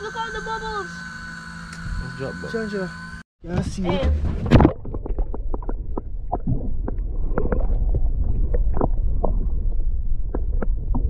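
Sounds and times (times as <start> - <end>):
underwater low rumble: 4.1 - 11.0
underwater clicks and pops: 4.4 - 11.0.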